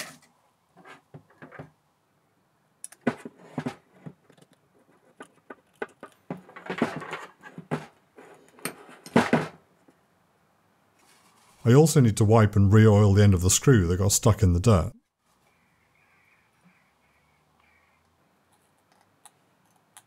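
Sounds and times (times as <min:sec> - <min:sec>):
metal parts clicking and knocking: 0:04.2 - 0:09.4.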